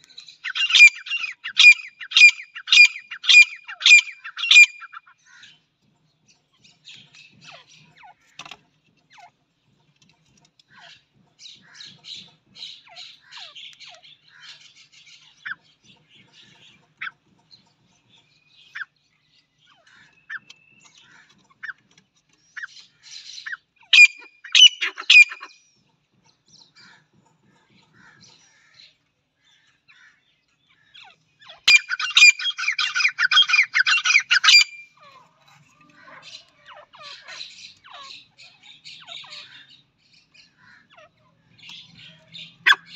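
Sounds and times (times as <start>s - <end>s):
francolins calling: 0.0s - 5.7s, 10.7s - 17.2s, 22.6s - 25.7s, 27.8s - 42.9s.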